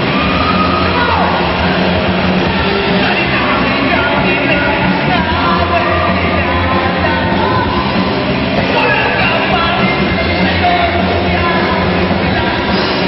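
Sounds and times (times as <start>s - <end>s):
bass guitar: 0.0s - 13.0s
electric guitars: 0.0s - 13.0s
man singing into microphone: 3.0s - 7.8s, 8.6s - 13.0s.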